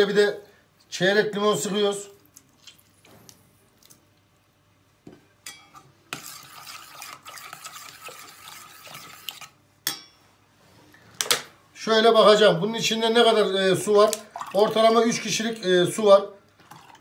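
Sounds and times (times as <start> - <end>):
fork whisking in metal pot: 5.5 - 9.6.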